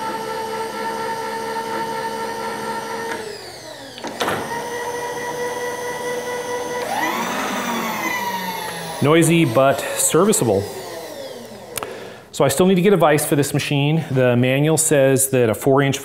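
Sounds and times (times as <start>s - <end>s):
machine feed motor whining: 0.0s - 12.3s.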